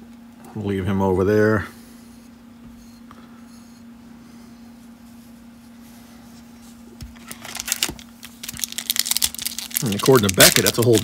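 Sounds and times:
faint steady hum: 0.0 - 11.0
foil pack crinkling: 7.2 - 11.0.

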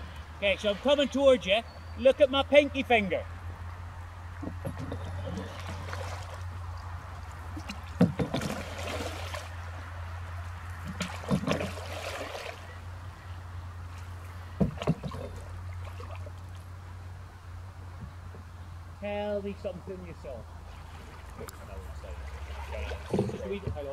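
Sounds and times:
steady low hum: 0.0 - 23.9
water rushing off paddle: 4.4 - 13.0, 13.9 - 16.7, 20.6 - 23.9
paddle blade knocking into water: 7.6 - 9.4, 10.8 - 12.5, 14.6 - 15.5.

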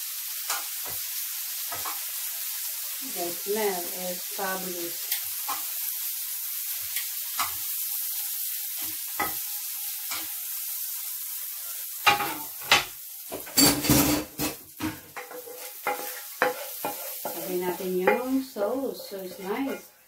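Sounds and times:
oil sizzling in a frying pan: 0.0 - 20.0
utensils clattering against pan: 12.0 - 19.9.

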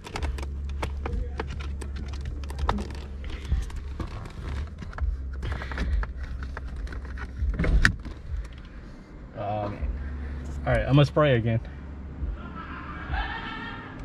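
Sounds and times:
hands clicking and rustling: 0.0 - 8.7
steady low hum: 0.0 - 14.0.

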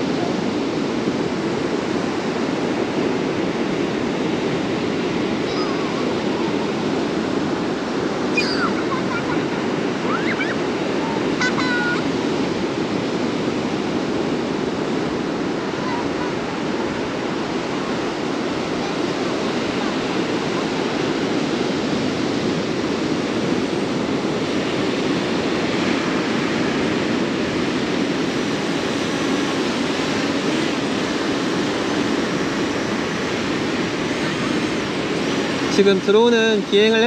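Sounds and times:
ocean surf breaking: 0.0 - 37.0
wind on microphone: 0.0 - 37.0
drone propellers whining: 5.3 - 12.2.

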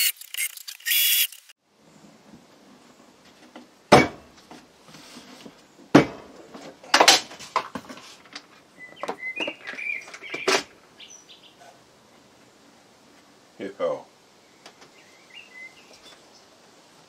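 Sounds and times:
high squeaks: 0.0 - 1.5.

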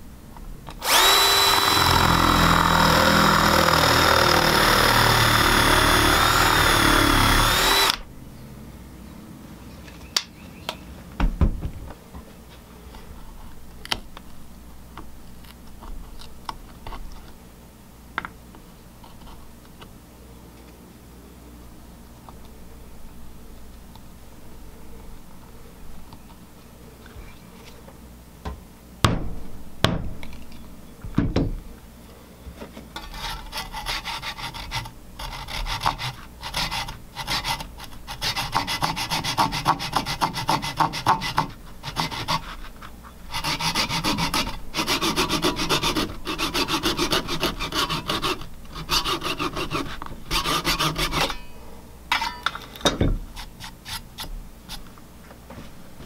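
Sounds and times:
handsaw rasping through wood: 0.8 - 8.0, 33.1 - 42.6, 43.3 - 51.3
thump: 11.2 - 11.8, 28.4 - 30.1.

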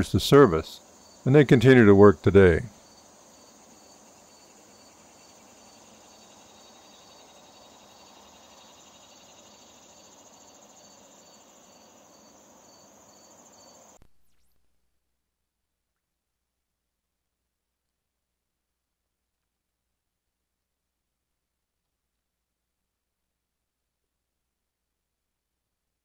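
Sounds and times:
cricket chirping: 0.0 - 14.6
steady high insect trill: 0.2 - 1.4, 2.6 - 14.5.

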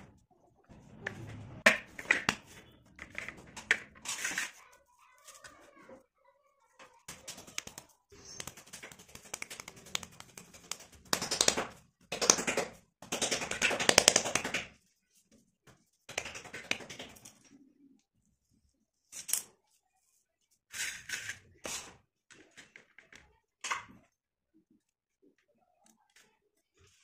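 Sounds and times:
hands slapping clay: 7.1 - 14.8, 16.1 - 17.2.

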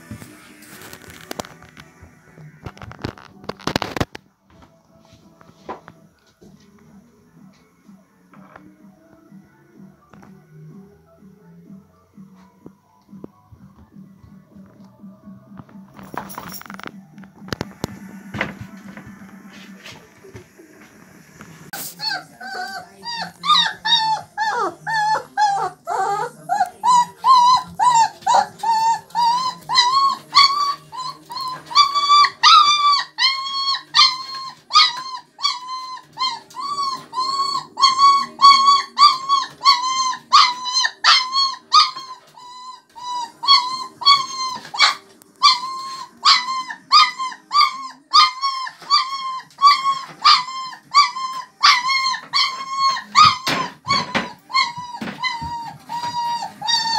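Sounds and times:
puppy whining: 21.7 - 56.9.

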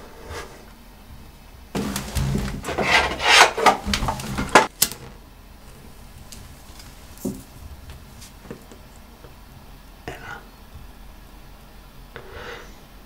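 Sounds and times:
hands rummaging on tiled shelf: 1.8 - 4.7, 6.1 - 8.8.

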